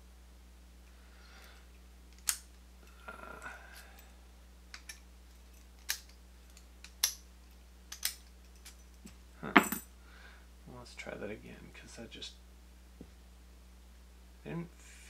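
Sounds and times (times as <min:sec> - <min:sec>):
padlock metal clicks: 0:05.6 - 0:07.2, 0:07.9 - 0:08.8
keys jingling: 0:07.9 - 0:09.0.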